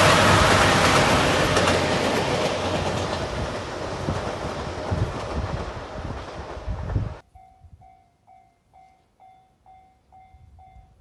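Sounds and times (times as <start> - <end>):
diesel train passing: 0.0 - 7.2.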